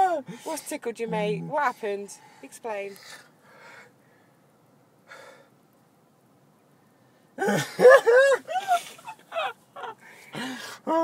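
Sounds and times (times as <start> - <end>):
man laughing high-pitched: 7.4 - 10.0
short breath: 10.0 - 10.9.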